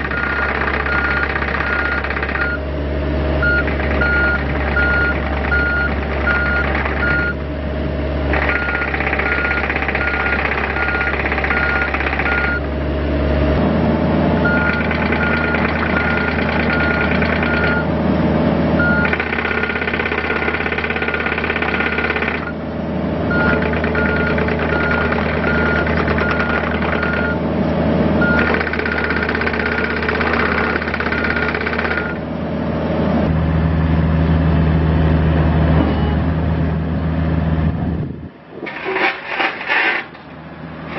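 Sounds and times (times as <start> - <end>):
diesel engine under load: 0.0 - 40.9
travel alarm beeping: 0.1 - 2.6, 3.4 - 7.4, 8.4 - 12.7, 14.4 - 17.9, 18.8 - 22.5, 23.3 - 27.4, 28.2 - 29.2.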